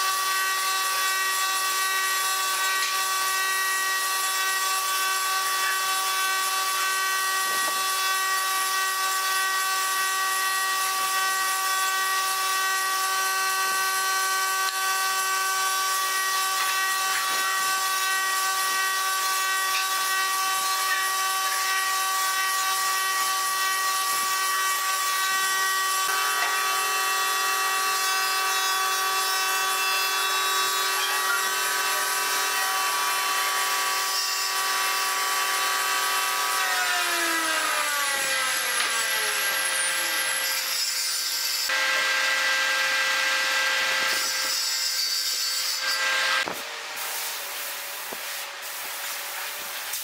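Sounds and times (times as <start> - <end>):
power tool motor whining: 36.6 - 40.7, 41.7 - 44.4.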